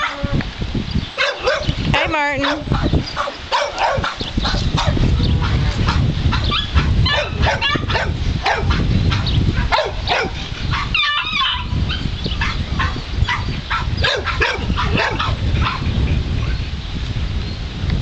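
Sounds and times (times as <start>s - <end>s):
dog yipping and barking: 0.0s - 0.3s, 1.2s - 1.8s, 2.4s - 5.0s, 6.3s - 15.8s
wind rumble on microphone: 0.0s - 18.0s.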